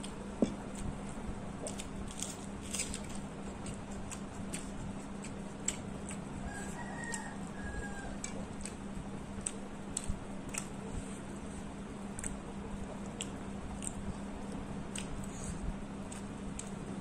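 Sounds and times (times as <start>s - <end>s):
steady low hum: 0.0s - 17.0s
chewing and lip-smacking: 1.6s - 10.9s, 12.1s - 17.0s
rooster crowing: 6.4s - 8.4s.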